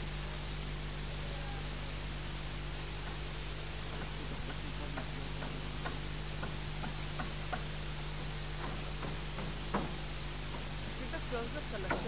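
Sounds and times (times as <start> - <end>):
steady hiss and low hum: 0.0 - 12.0
faint hammering knocks: 3.9 - 10.9.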